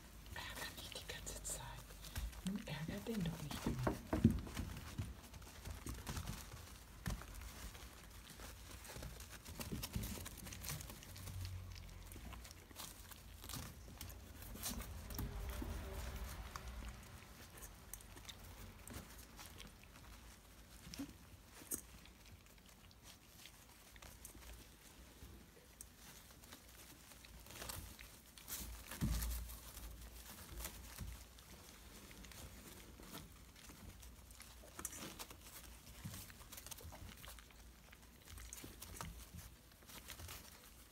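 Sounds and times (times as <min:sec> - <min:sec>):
crinkling of puppy pads: 0:00.0 - 0:40.9.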